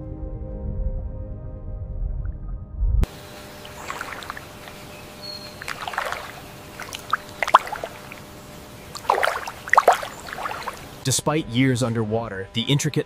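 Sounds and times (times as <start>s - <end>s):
deep underwater rumble: 0.2s - 11.0s
water lapping and trickling: 3.0s - 11.0s
water splashes: 3.1s - 11.0s.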